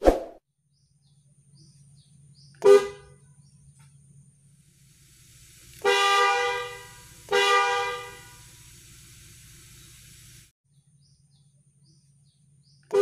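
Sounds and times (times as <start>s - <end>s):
car horn blasts: 2.6s - 3.2s, 5.8s - 8.5s.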